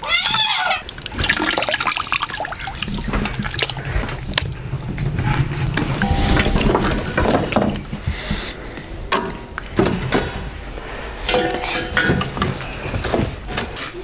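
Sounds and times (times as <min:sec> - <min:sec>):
low steady hum: 0:00.6 - 0:13.5
wet clicks and drips: 0:00.8 - 0:05.8
water sloshing in metal pot: 0:00.8 - 0:08.0.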